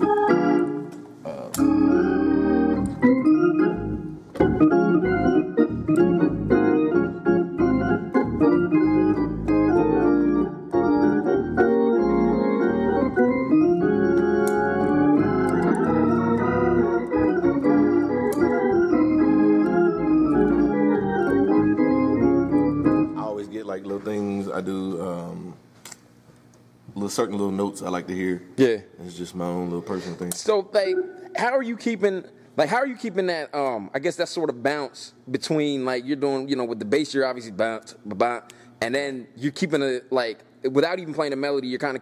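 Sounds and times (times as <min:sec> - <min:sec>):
organ playing hymn-style chords: 0:00.0 - 0:25.5, 0:30.7 - 0:31.7.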